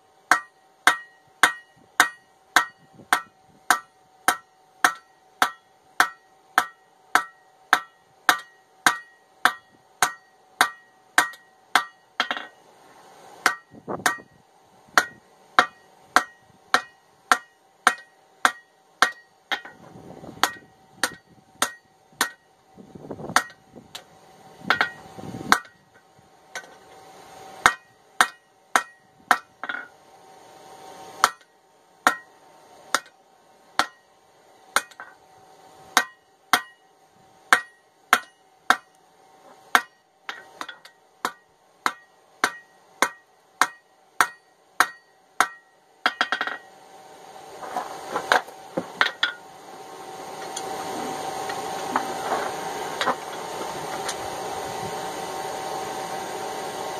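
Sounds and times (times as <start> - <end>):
hammer ringing on hot steel: 0.3 - 12.6, 13.4 - 14.4, 15.0 - 19.8, 20.4 - 22.6, 23.3 - 24.0, 24.7 - 26.8, 27.6 - 30.0, 31.2 - 33.2, 33.8 - 35.2, 35.9 - 39.0, 39.7 - 46.8.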